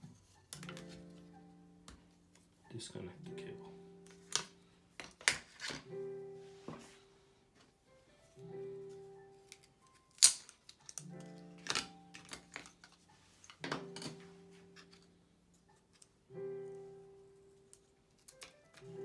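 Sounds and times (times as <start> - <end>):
slow keyboard chords: 0.0 - 5.0, 5.9 - 10.1, 10.8 - 19.0
plastic parts clicking: 9.5 - 14.1.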